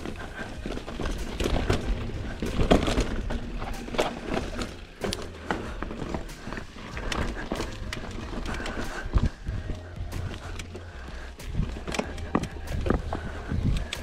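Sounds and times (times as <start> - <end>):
bike rattling over rocky trail: 0.0 - 14.0
wind rumble on microphone: 8.0 - 14.0.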